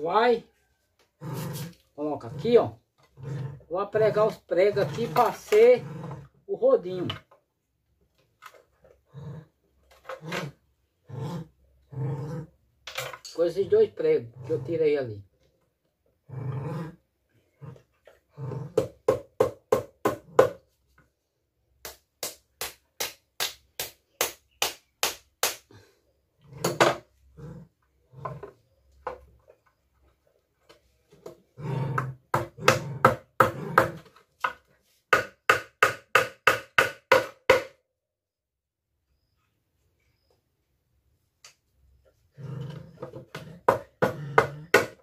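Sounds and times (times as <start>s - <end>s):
hammer striking nails into wood: 18.8s - 20.6s, 21.8s - 25.7s, 32.0s - 37.8s, 43.6s - 45.0s.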